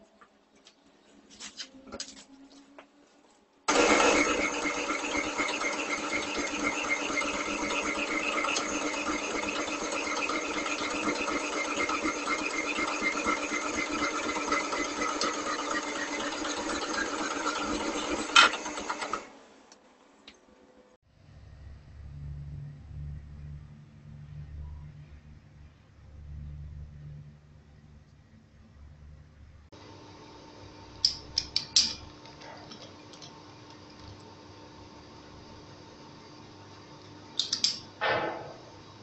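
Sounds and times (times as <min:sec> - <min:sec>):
band saw cutting steel: 0:03.7 - 0:19.3.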